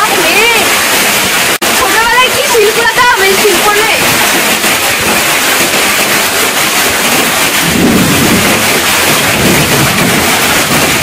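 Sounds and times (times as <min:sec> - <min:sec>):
heavy rain in wind: 0:00.0 - 0:11.0
deep rumble: 0:07.6 - 0:11.0.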